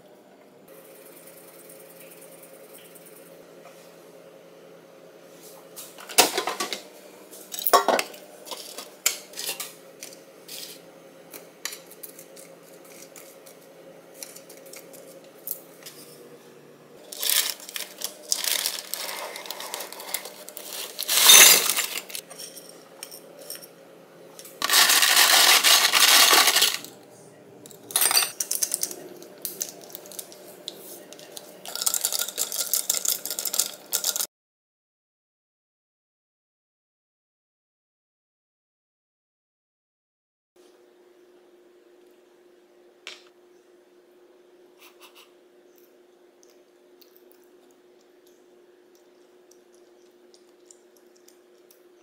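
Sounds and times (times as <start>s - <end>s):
parchment paper rustling: 17.0s - 22.2s, 24.6s - 26.8s
ice rattling in a glass mug: 17.1s - 22.2s, 24.6s - 26.9s, 27.9s - 30.3s, 31.2s - 34.3s.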